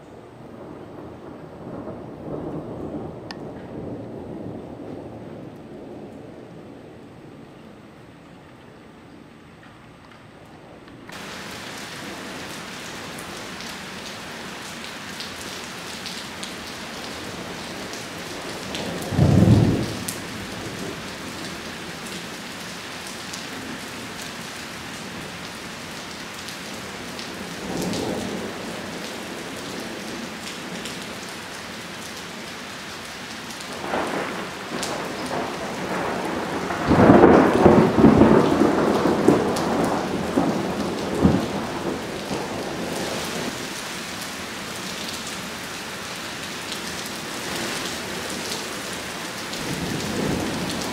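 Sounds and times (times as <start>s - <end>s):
steady rain: 0.0s - 50.9s
thunder: 0.4s - 6.9s, 18.7s - 21.4s, 33.8s - 43.6s.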